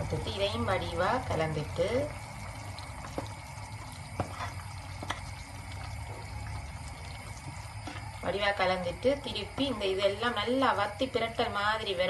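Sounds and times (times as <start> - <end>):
curry bubbling in a pan: 0.0 - 12.0
spatula stirring: 1.2 - 8.4.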